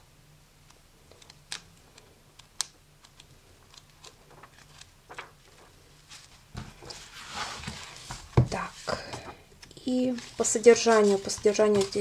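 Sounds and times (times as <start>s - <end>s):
paper pages being turned: 3.1s - 8.9s, 9.6s - 12.0s.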